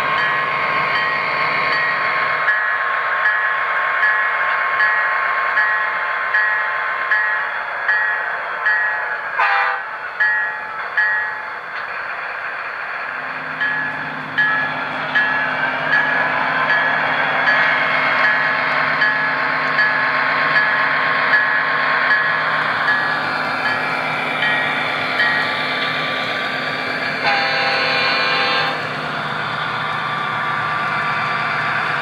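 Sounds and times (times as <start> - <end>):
locomotive bell dinging: 0.0 - 11.7, 13.3 - 28.8
diesel engine hum: 11.6 - 32.0.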